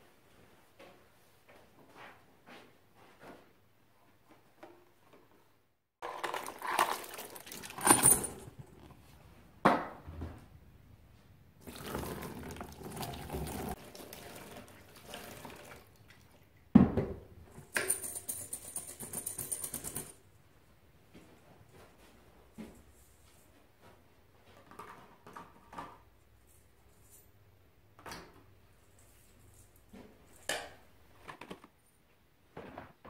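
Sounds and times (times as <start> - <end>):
water pouring over metal parts: 6.2 - 8.2, 11.6 - 16.0
liquid pouring into strainer: 11.6 - 16.3.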